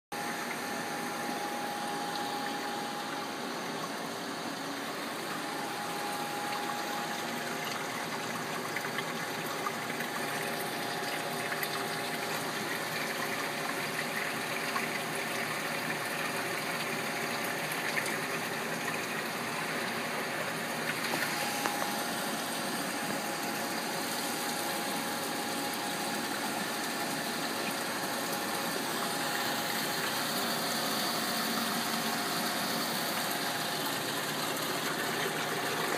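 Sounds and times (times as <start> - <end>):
thin whine: 0.2 - 8.6
machinery hum and hiss: 0.2 - 35.9.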